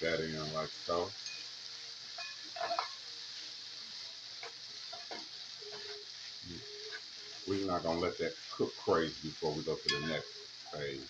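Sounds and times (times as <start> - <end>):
chicken and peppers sizzling in a skillet: 0.0 - 11.0
tongs scraping and clicking on pan: 1.2 - 3.1, 4.3 - 6.2, 9.8 - 10.8.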